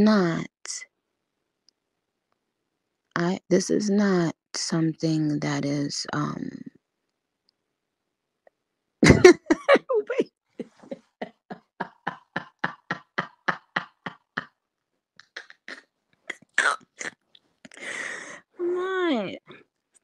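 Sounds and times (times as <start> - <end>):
woman laughing: 9.0 - 14.6.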